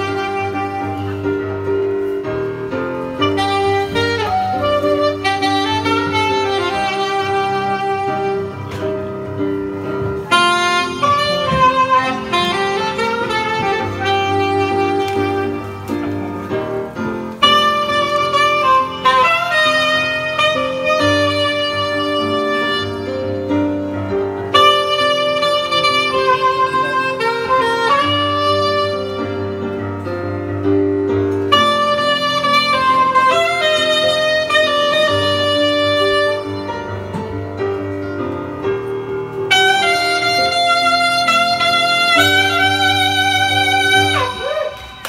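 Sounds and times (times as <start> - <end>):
bass line: 0.0 - 29.7
piano accompaniment: 0.0 - 45.0
soprano saxophone melody: 0.0 - 45.0.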